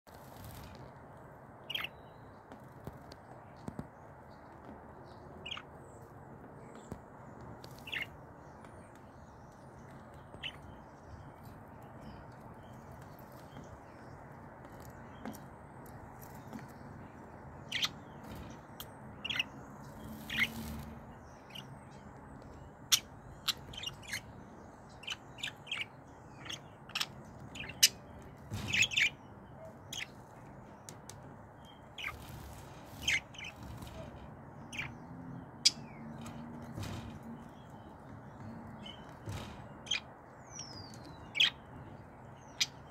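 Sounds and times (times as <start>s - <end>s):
budgerigars chirping: 1.7s - 2.0s, 5.4s - 5.7s, 7.6s - 8.2s, 17.6s - 21.7s, 22.6s - 24.3s, 24.9s - 30.2s, 31.6s - 42.9s.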